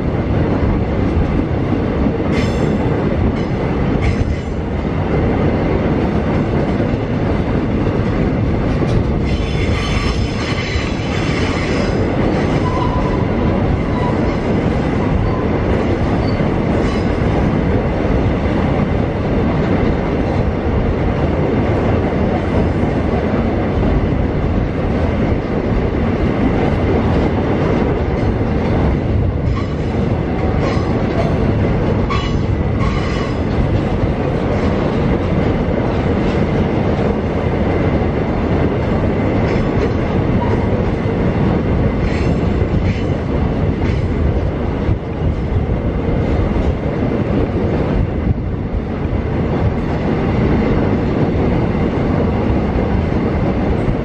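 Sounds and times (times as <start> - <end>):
train wheels rumbling on rail: 0.0 - 54.0
clacking over rail joints: 2.3 - 4.7, 5.9 - 17.5, 26.4 - 37.8, 38.5 - 45.6
high-pitched wheel squeals: 12.6 - 13.3.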